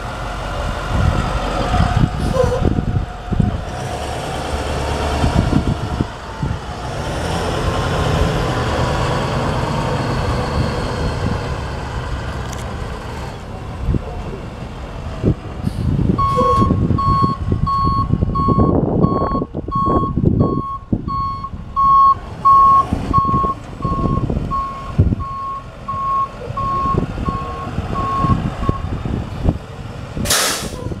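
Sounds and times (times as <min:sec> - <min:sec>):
truck backup alarm beeping: 0:16.2 - 0:29.0.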